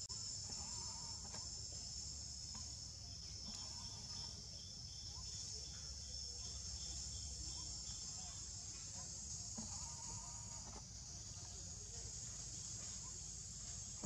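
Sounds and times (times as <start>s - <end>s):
high-pitched insect chorus: 0.0s - 14.0s
insect calling in short pulses: 0.3s - 1.6s.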